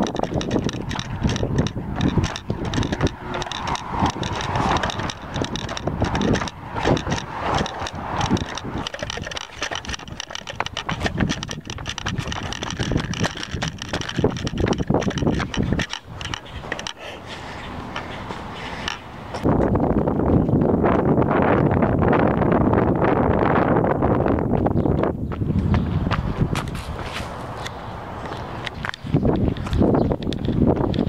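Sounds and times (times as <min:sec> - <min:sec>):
camera handling knocks and clicks: 0:00.0 - 0:17.0
wind rumble on microphone: 0:00.0 - 0:31.0.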